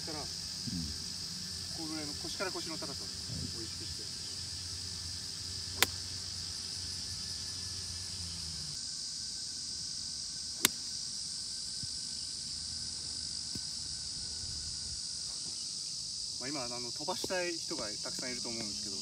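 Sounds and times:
insects chirring: 0:00.0 - 0:19.0
golf club striking ball: 0:05.7 - 0:06.1.

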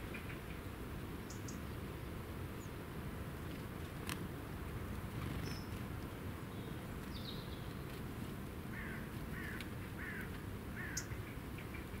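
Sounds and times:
wild birds calling: 0:08.7 - 0:12.0.

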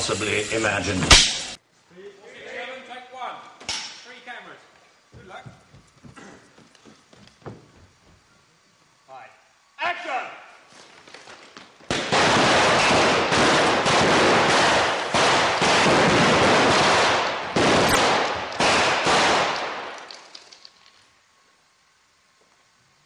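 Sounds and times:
explosive blasts: 0:11.9 - 0:20.0
gunfire-like cracks: 0:11.9 - 0:20.1.

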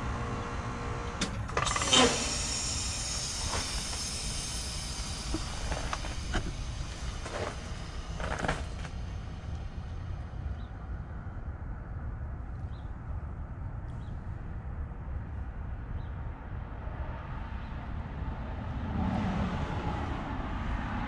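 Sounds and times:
heat pump fan and compressor running: 0:00.0 - 0:18.9
small sharp noises: 0:01.2 - 0:10.0
hissing burst: 0:01.4 - 0:09.8.

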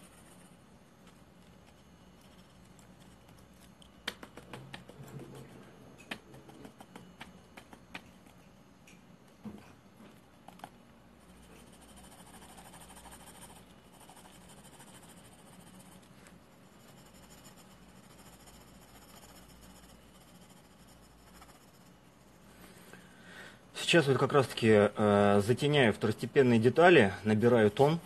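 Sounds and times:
pencil scratching on paper: 0:11.3 - 0:21.9.

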